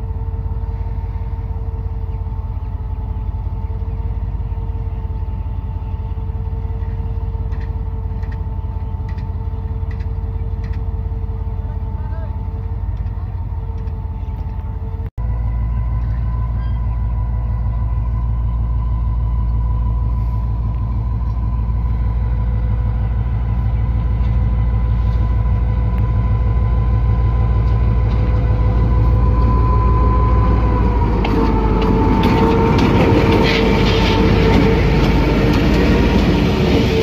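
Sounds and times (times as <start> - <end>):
locomotive engine drone and whine: 0.0 - 37.0
wheels clicking on track: 6.7 - 11.1, 12.0 - 14.7, 27.5 - 37.0.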